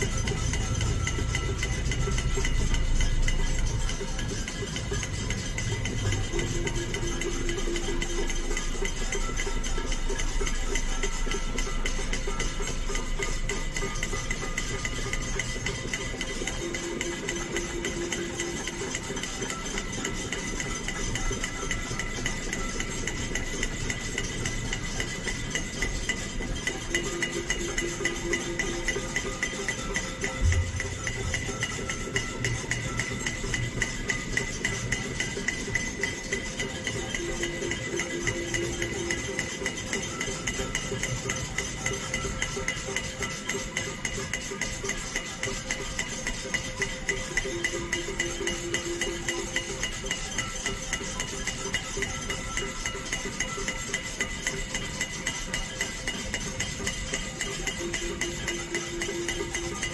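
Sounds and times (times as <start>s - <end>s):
metal pots and pans struck: 0.0s - 40.5s.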